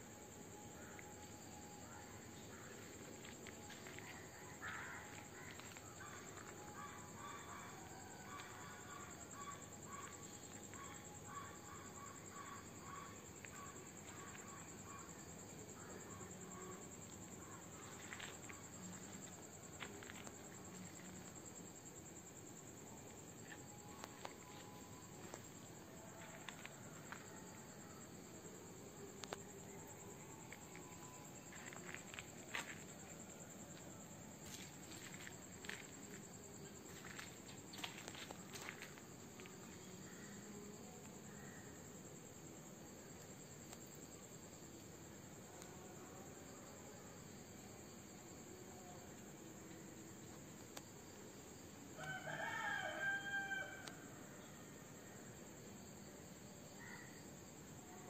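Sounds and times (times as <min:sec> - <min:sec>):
crickets droning: 0:00.0 - 0:58.0
rooster crowing: 0:52.0 - 0:54.1.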